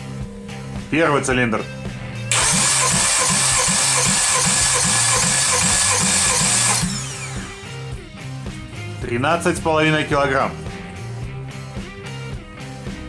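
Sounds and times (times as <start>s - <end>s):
engine cranking whirr: 2.3s - 7.9s.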